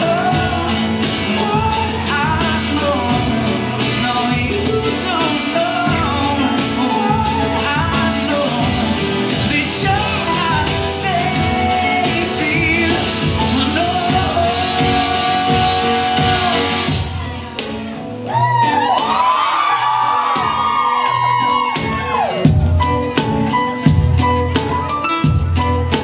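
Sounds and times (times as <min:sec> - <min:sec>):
man singing: 0:00.0 - 0:17.2
acoustic guitar: 0:00.0 - 0:26.0
audience cheering and whooping: 0:18.0 - 0:23.2.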